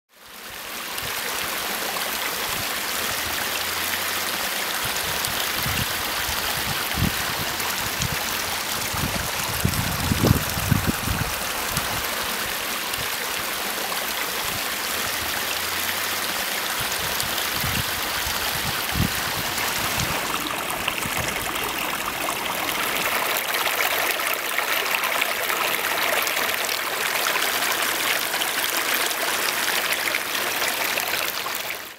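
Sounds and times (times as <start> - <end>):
waterfall splashing over stones: 0.2 - 31.9.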